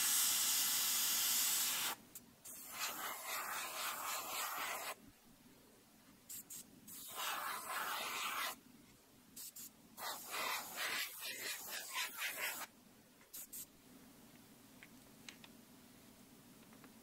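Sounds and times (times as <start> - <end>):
airbrush spraying hiss: 1.6 - 5.0, 6.3 - 8.6, 9.4 - 12.7, 13.3 - 13.7.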